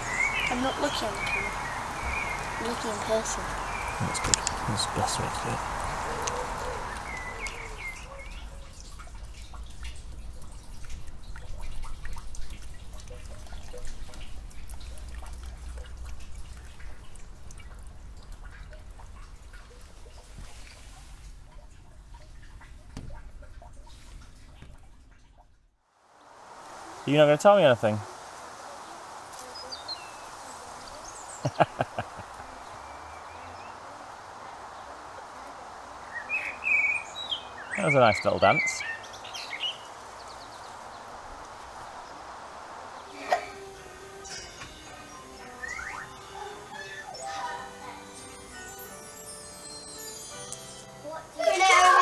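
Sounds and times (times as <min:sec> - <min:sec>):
rain dripping onto leaves: 0:00.0 - 0:24.7, 0:26.0 - 0:45.5
outdoor background hiss: 0:00.0 - 0:52.0.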